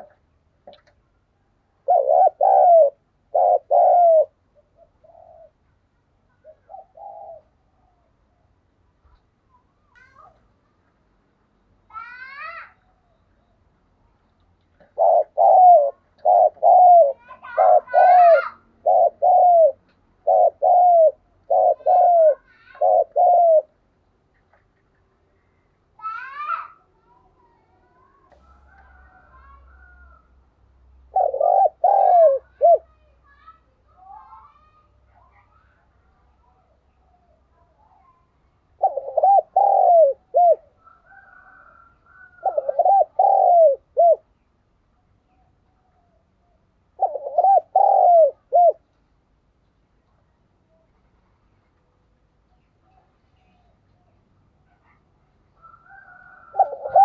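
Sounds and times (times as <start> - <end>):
dove cooing: 0.0 - 0.2, 1.8 - 5.6, 6.3 - 8.4, 14.8 - 23.8, 31.0 - 33.0, 38.7 - 44.3, 45.8 - 48.9, 55.6 - 57.0.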